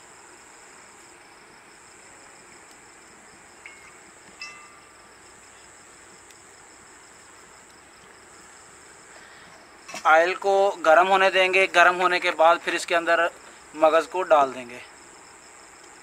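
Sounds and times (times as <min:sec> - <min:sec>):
crickets chirping: 0:00.0 - 0:16.0
high clinks: 0:03.6 - 0:05.0.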